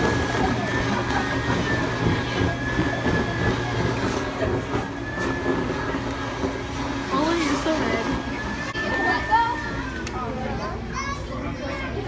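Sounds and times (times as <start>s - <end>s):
blower humming with thin whine: 0.0s - 12.0s.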